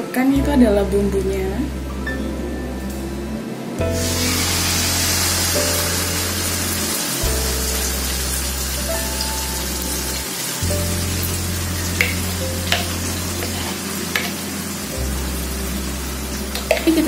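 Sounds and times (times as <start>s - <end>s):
paste sizzling in hot oil: 4.0s - 17.0s.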